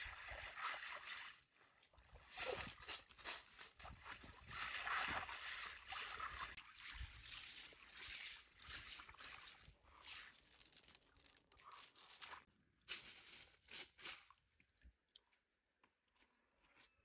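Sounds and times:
water sloshing and trickling: 0.0 - 12.5.

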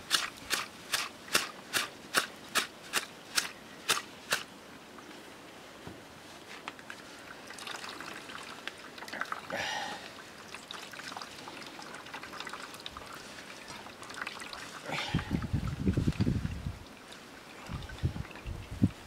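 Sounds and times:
water trickling and dripping: 6.7 - 19.0.

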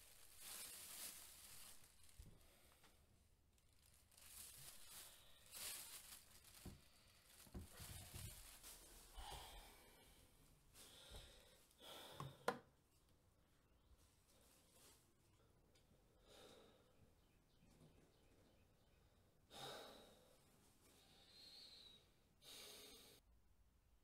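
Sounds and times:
plastic bag rustling: 0.0 - 9.9
handling noises: 3.7 - 9.5.

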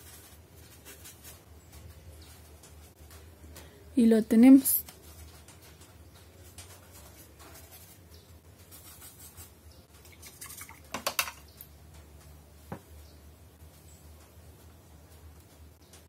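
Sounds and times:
paintbrush dabbing on styrofoam: 6.8 - 9.6.

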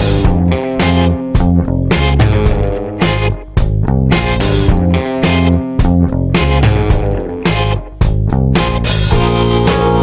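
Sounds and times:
guitar and bass music with beat: 0.0 - 10.0.

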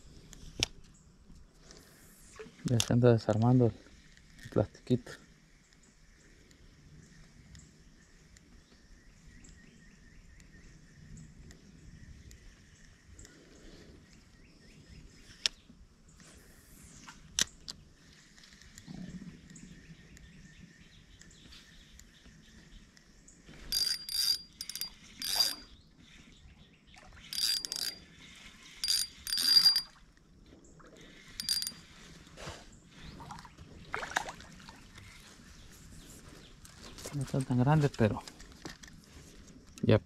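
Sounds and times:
fishing reel whirring: 23.6 - 25.8, 27.3 - 30.0, 31.1 - 32.1.

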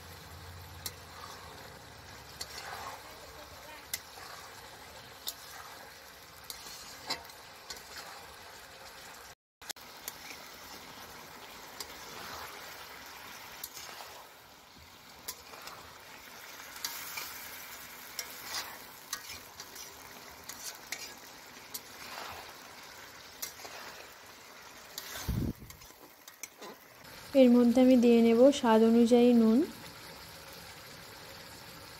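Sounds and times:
curry sizzling in a pan: 0.0 - 31.9
spatula scraping a pan: 0.6 - 9.1, 9.9 - 14.4, 15.1 - 27.0.

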